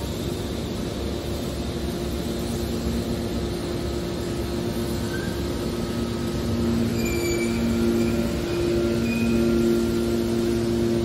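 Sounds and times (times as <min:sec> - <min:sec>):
hydraulic baler rumble and hum: 0:00.0 - 0:11.0
high squeaks: 0:06.8 - 0:09.6.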